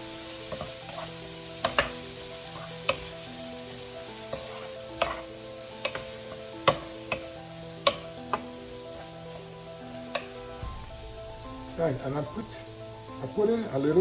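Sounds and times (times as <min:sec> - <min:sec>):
background music with held chords: 0:00.0 - 0:14.0
food sizzling: 0:00.0 - 0:14.0
wooden spatula scraping frying pan: 0:00.1 - 0:11.0.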